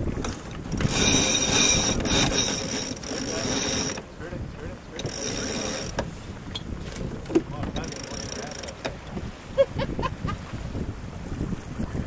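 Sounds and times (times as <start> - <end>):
winch ratcheting: 0.2 - 4.2, 4.9 - 9.2.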